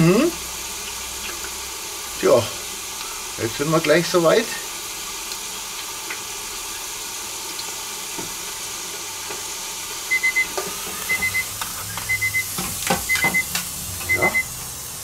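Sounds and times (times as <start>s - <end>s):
oil bubbling in deep fryer: 0.0s - 15.0s
fryer timer beeping: 9.7s - 15.0s.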